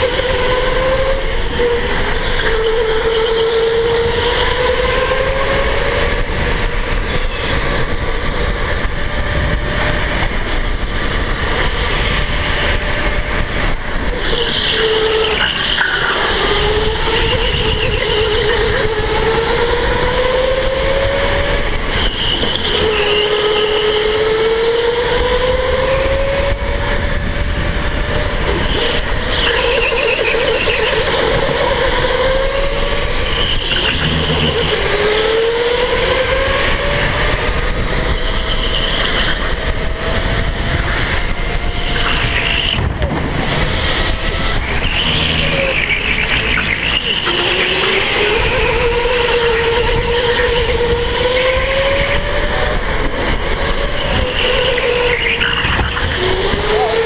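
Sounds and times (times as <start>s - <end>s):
electric go-kart motor whining: 0.0s - 57.0s
low rumble: 42.8s - 46.1s.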